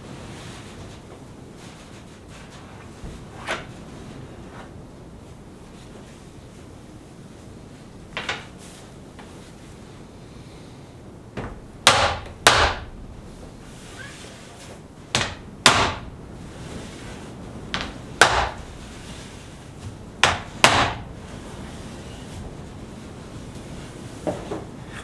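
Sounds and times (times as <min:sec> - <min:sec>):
knocks on wooden door: 0:11.4 - 0:12.9.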